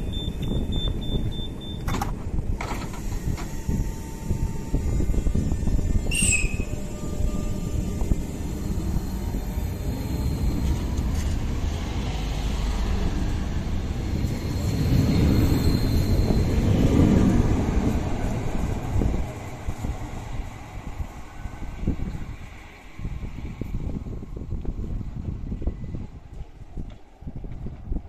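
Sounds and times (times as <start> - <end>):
train wheels rumbling: 0.0 - 28.0
brief high squeal: 6.0 - 7.6.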